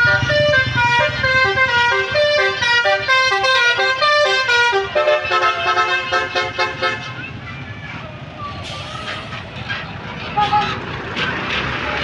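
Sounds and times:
musical horn melody: 0.0s - 7.1s
diesel engine rumble: 0.0s - 12.0s.

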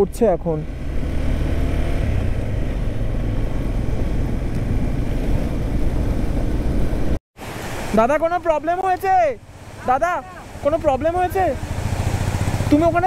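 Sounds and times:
motorcycle engine running: 10.8s - 13.0s.

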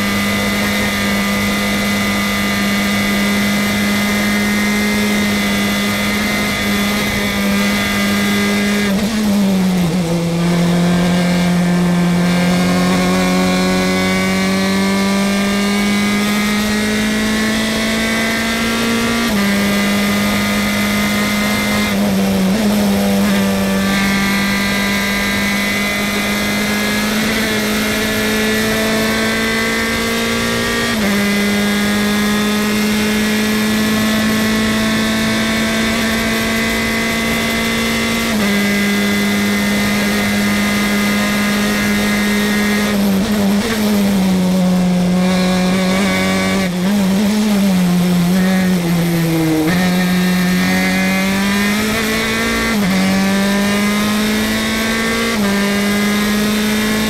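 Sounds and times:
race car engine at full throttle: 0.0s - 57.0s
wind and tyre noise: 0.0s - 57.0s.

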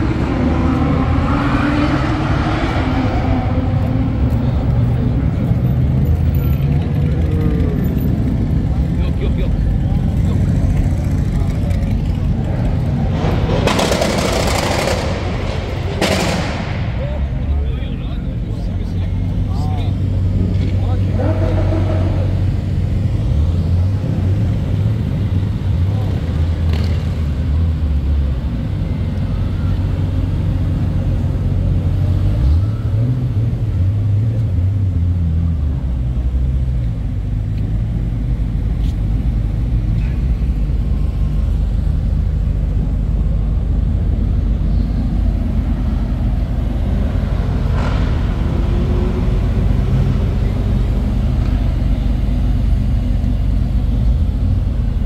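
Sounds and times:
sports car engines rumbling: 0.0s - 55.0s
engine revving: 10.2s - 16.9s, 45.5s - 51.9s.

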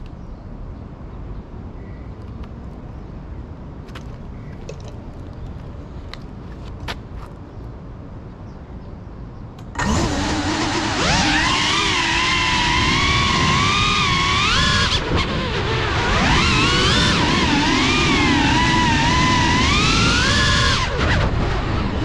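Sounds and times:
drone motors whining: 9.7s - 22.0s.

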